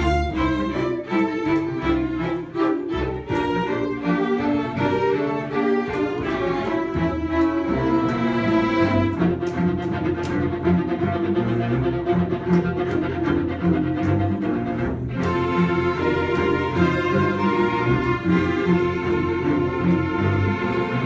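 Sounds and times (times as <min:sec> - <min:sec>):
string ensemble playing: 0:00.0 - 0:21.0.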